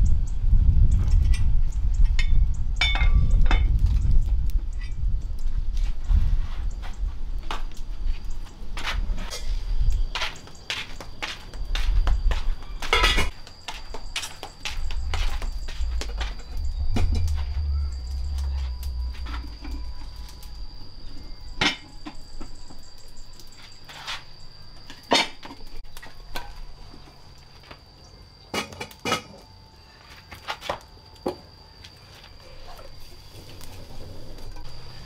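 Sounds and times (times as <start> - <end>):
dishes and utensils clinking: 12.8 - 13.3.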